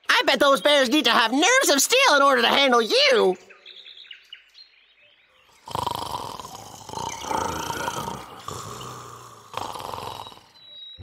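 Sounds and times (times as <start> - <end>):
cartoon bears snoring: 5.5 - 10.6.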